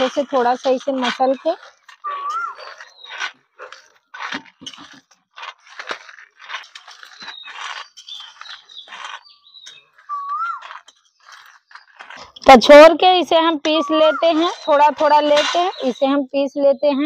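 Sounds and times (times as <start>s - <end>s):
peanuts crunching on steel plate: 0.0s - 12.4s
bird calling: 1.6s - 4.0s, 7.0s - 12.1s, 13.7s - 16.0s.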